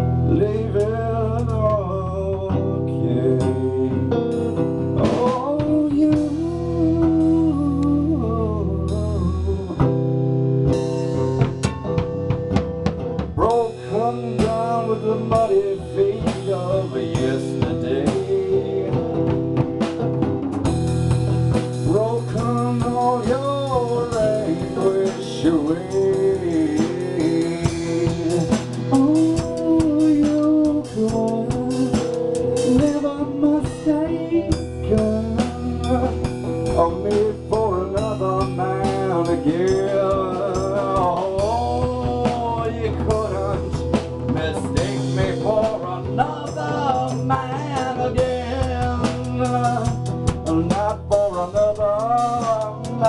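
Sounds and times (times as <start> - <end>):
drum kit played with sticks: 0.0 - 53.0
guitar: 0.0 - 53.0.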